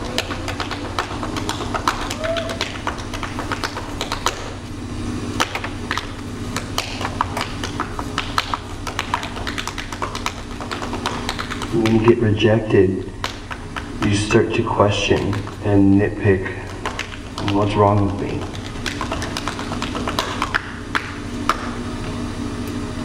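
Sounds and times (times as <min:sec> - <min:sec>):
tap shoes on stage floor: 0:00.0 - 0:04.6, 0:05.4 - 0:12.2, 0:13.2 - 0:13.9, 0:15.0 - 0:15.6, 0:16.5 - 0:21.8.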